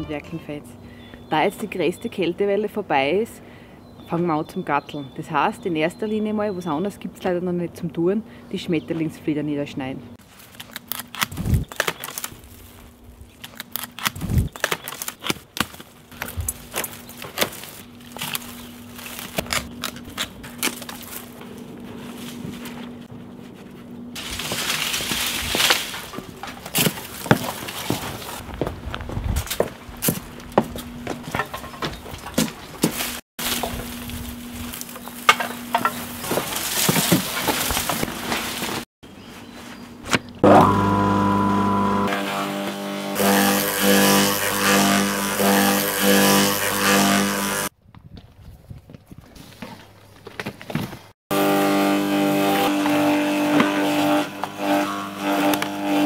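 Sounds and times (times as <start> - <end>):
dry stems rustling and crackling: 10.2 - 38.9
loppers cutting dry stems: 10.3 - 21.7, 40.2 - 47.7, 51.3 - 56.0
twigs snapping: 10.4 - 21.6.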